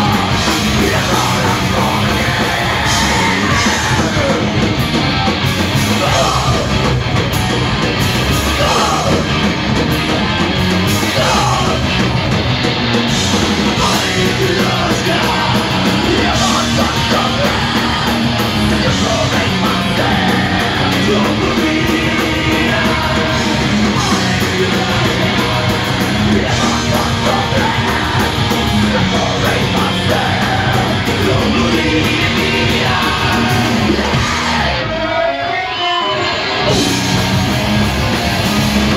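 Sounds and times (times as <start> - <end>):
singer yelling into microphone: 0.0 - 4.6, 13.8 - 36.8
punk band playing live: 0.0 - 38.9.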